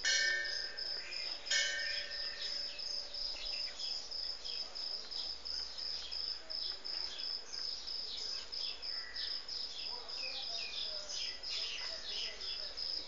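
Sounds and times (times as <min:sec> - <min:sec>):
insects chirring: 0:00.0 - 0:13.0
small birds chirping: 0:00.0 - 0:13.0.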